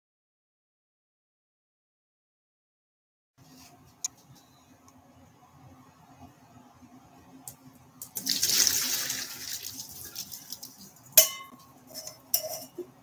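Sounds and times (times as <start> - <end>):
water pouring into metal sink: 8.0 - 11.1
sharp metal clank: 11.2 - 12.7.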